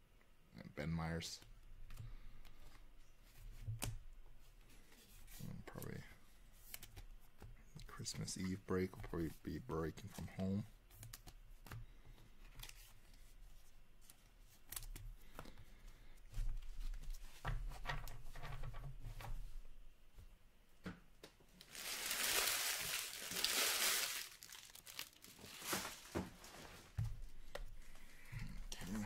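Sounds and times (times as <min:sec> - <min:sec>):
card packaging tearing: 0:21.6 - 0:26.1.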